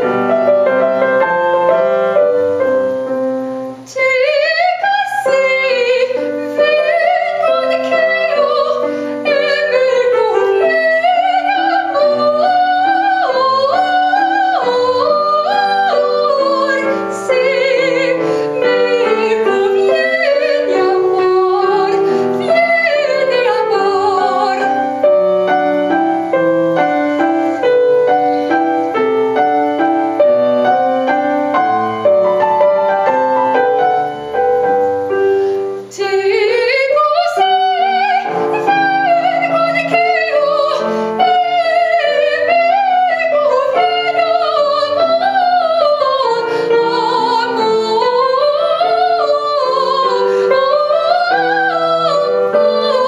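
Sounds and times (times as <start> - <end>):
grand piano: 0.0 - 53.0
woman singing operatically: 3.9 - 24.9, 35.9 - 53.0.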